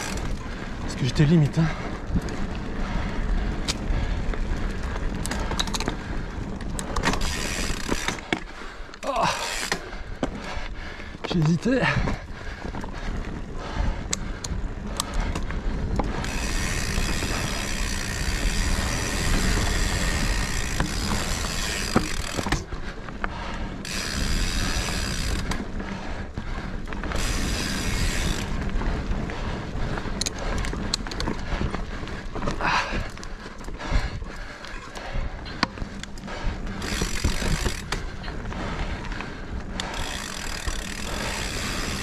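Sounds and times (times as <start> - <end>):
bike rattling and clicking: 0.0 - 42.0
bike tyres rumbling on dirt: 0.0 - 42.0
freewheel ratchet buzzing: 6.9 - 8.3, 16.2 - 22.6, 23.8 - 25.6, 27.1 - 28.6, 36.8 - 38.0, 39.8 - 42.0.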